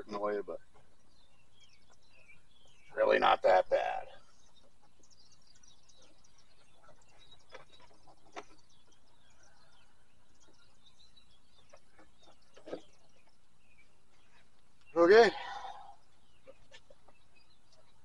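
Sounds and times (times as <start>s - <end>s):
faint birds chirping: 0.0s - 18.0s.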